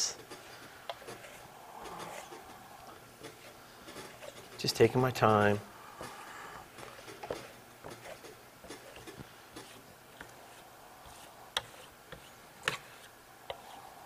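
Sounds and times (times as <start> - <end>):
trowel scraping: 6.9 - 13.8.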